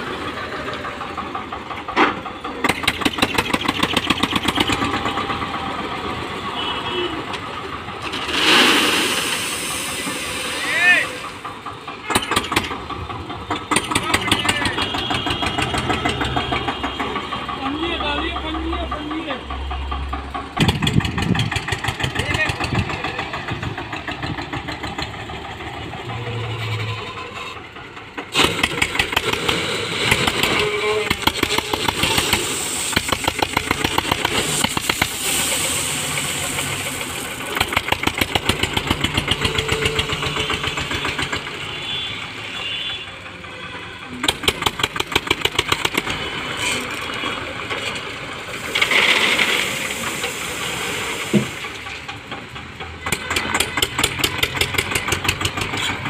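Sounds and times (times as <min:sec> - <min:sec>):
diesel tractor engine thumping: 0:00.0 - 0:26.4, 0:27.2 - 0:42.1, 0:44.1 - 0:50.4, 0:51.0 - 0:56.0
gravel rattling out of bucket: 0:08.0 - 0:11.0, 0:31.2 - 0:38.7, 0:46.4 - 0:52.0.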